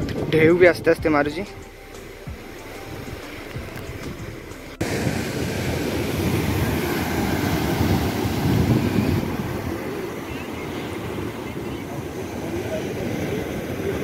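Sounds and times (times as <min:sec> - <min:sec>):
small waves washing over sand: 0:04.8 - 0:14.0
waves breaking on rocky shore: 0:04.8 - 0:14.0.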